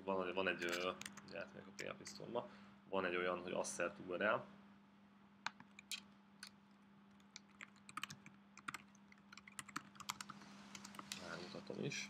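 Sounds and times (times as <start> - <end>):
faint low hum: 0.0 - 12.0
computer keyboard typing: 7.2 - 11.2.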